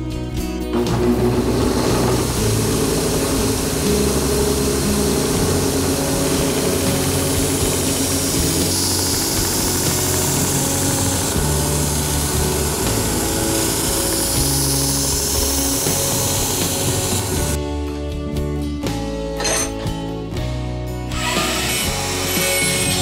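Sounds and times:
belt grinder motor hum: 0:00.8 - 0:17.6, 0:21.2 - 0:23.0
knife blade grinding hiss: 0:07.6 - 0:17.5.

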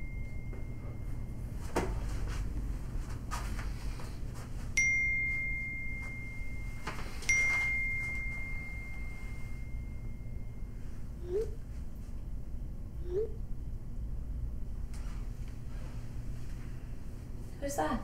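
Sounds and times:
phone notification ding: 0:04.8 - 0:10.2.

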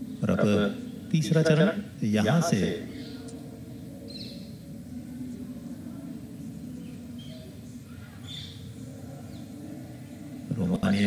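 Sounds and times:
faint stadium broadcast hum: 0:00.0 - 0:11.0.

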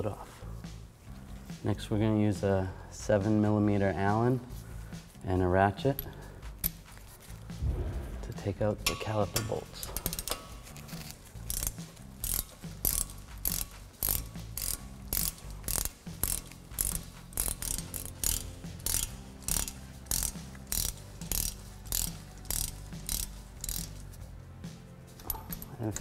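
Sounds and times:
hand ratchet clicking: 0:05.8 - 0:07.4, 0:08.4 - 0:24.2, 0:25.2 - 0:26.0.

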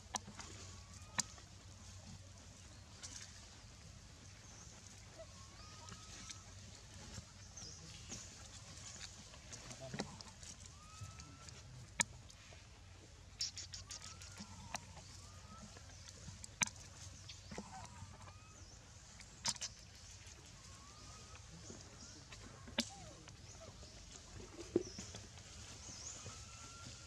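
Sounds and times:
faint short chirping calls: 0:13.3 - 0:24.1.

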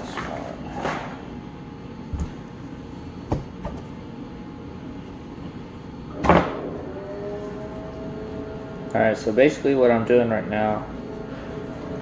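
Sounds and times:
kitchen ventilation drone: 0:00.0 - 0:12.0.

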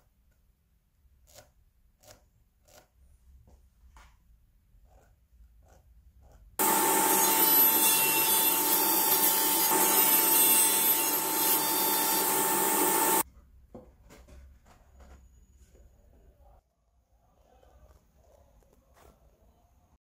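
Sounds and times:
panel saw cutting wood: 0:06.6 - 0:13.2.

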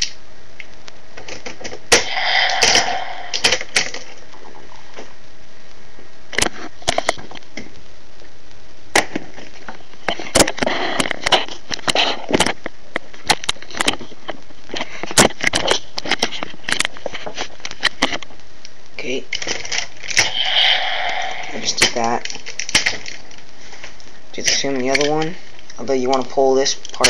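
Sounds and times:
plastic toy parts clicking: 0:19.3 - 0:20.5, 0:21.8 - 0:23.4, 0:24.4 - 0:25.4, 0:26.1 - 0:27.0.

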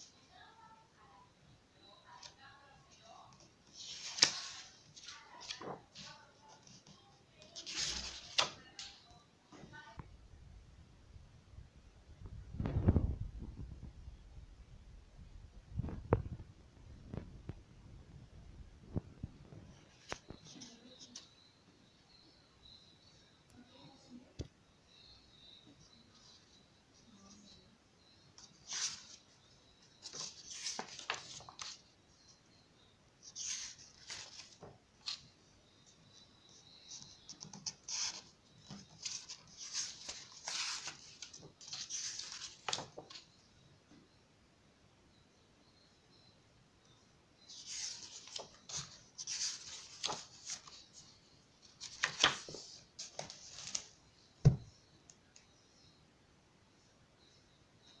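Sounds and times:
book pages turning: 0:03.3 - 0:09.0, 0:28.4 - 0:29.2, 0:29.9 - 0:31.9, 0:33.3 - 0:35.3, 0:37.2 - 0:43.3, 0:47.5 - 0:51.0, 0:51.7 - 0:53.9.

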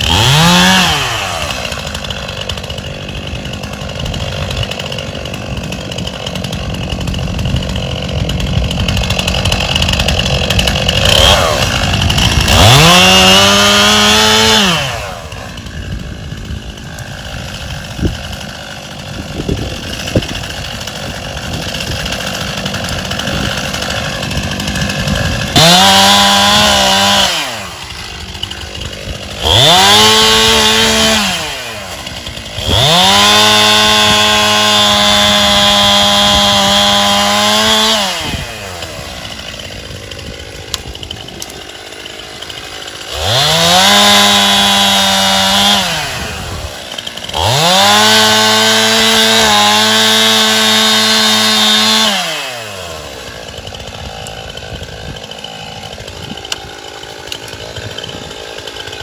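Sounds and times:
chainsaw revving and idling: 0:00.0 - 0:59.0.

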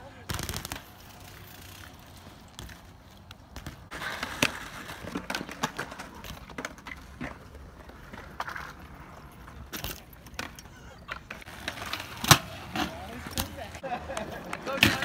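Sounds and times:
bike tyres rolling on concrete: 0:00.0 - 0:15.0
bike landing clacks and knocks: 0:00.3 - 0:01.0, 0:03.5 - 0:07.4.

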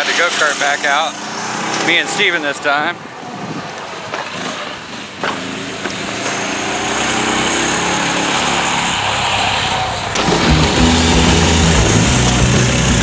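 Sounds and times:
go-kart engine running: 0:04.0 - 0:13.0.

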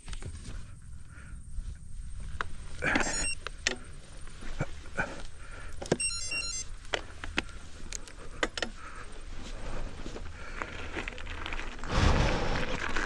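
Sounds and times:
low rumble: 0:00.0 - 0:05.8
high chirping tones: 0:02.0 - 0:03.6, 0:06.0 - 0:06.8
sharp clicks and knocks: 0:02.3 - 0:03.9, 0:05.7 - 0:06.1, 0:06.8 - 0:08.8.

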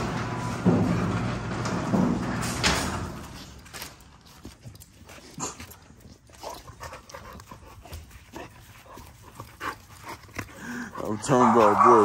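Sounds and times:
dogs panting: 0:04.3 - 0:12.0
dogs sniffing: 0:04.3 - 0:12.0.

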